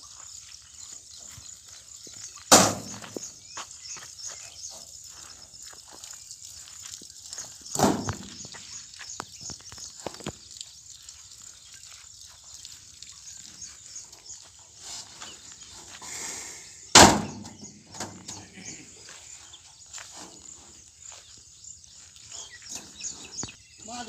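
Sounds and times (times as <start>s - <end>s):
stone thudding into steel cart: 2.5s - 3.1s, 7.7s - 8.3s, 17.0s - 18.2s
stones knocking: 2.5s - 3.3s, 7.7s - 10.4s.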